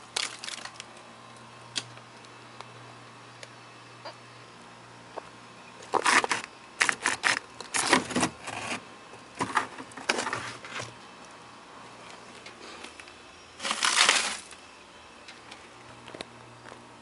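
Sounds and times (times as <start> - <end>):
ice crunching and scraping: 0.0 - 0.8, 5.8 - 8.8, 9.4 - 10.9, 13.6 - 14.6.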